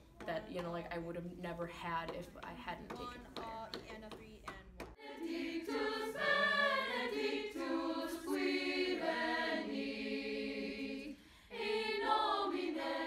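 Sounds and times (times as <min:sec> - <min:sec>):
choir singing: 0:05.0 - 0:13.0.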